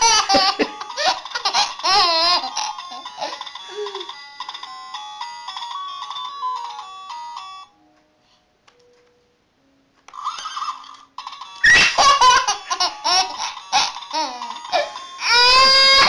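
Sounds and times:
baby laughing: 0:00.0 - 0:04.1, 0:11.6 - 0:16.0.

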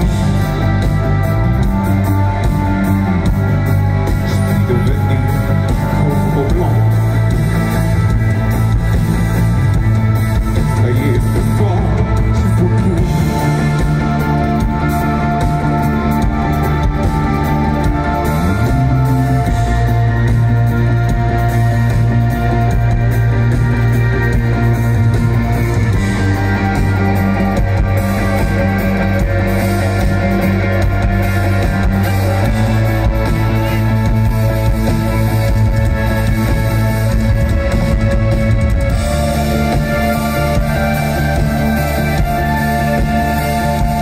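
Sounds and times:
live rock band playing: 0:00.0 - 0:44.0.

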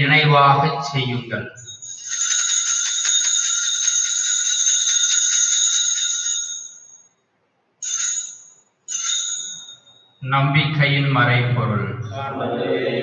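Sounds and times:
small hand bells jingling: 0:01.6 - 0:07.1.

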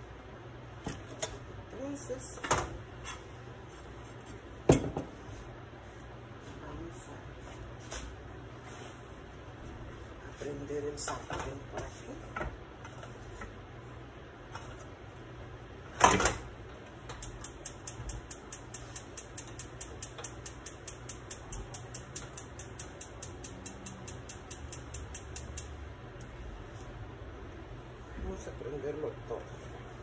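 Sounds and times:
gas stove igniter clicking: 0:17.1 - 0:26.3.

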